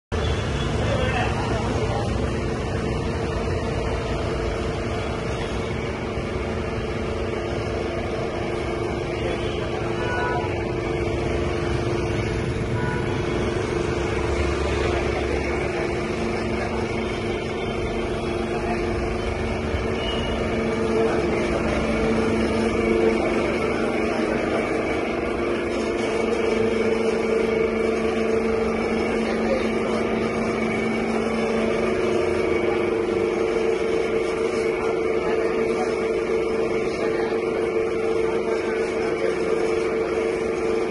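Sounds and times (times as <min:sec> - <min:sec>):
street traffic hum: 0:00.1 - 0:40.9.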